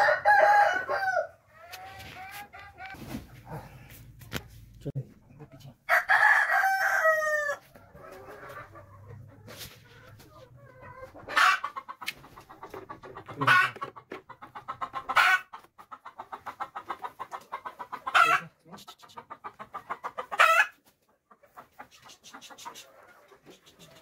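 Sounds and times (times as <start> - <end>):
rooster crowing: 0.0 - 1.4, 5.9 - 7.6
hens clucking: 0.0 - 24.0
hens squawking: 7.8 - 24.0.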